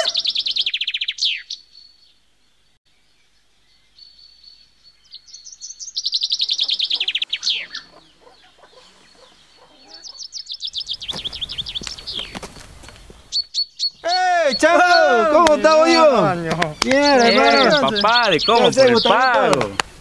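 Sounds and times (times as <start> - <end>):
bird chirping rapidly: 0.0 - 2.1, 4.0 - 12.4, 13.2 - 19.8
footsteps on dirt path: 10.7 - 13.3.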